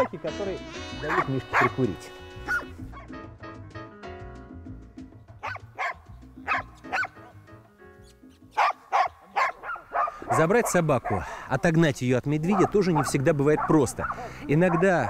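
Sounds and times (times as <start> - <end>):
dogs barking: 0.0 - 0.2, 1.0 - 3.2, 5.4 - 7.5, 8.5 - 11.7, 12.3 - 15.0
background music: 0.0 - 15.0.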